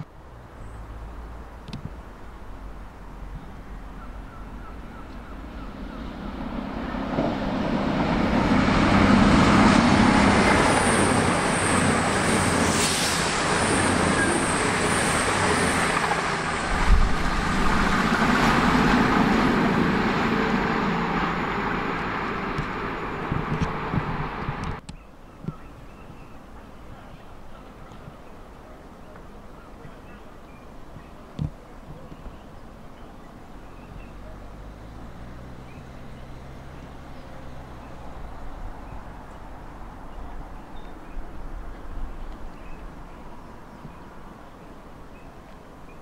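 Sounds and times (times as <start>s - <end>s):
diesel train passing: 2.1s - 24.8s.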